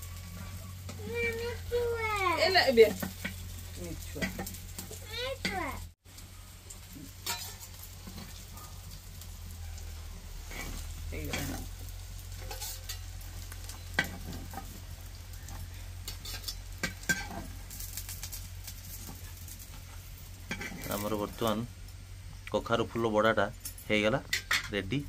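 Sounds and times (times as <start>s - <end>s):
fritters sizzling in oil: 0.0s - 25.0s
metal spatula scraping a pan: 2.4s - 5.6s, 6.9s - 8.6s, 9.4s - 21.5s.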